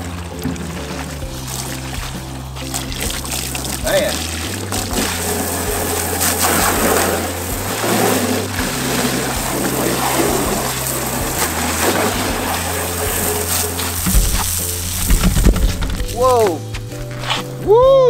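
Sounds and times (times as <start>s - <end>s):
hose water splashing into drum: 0.0s - 17.6s.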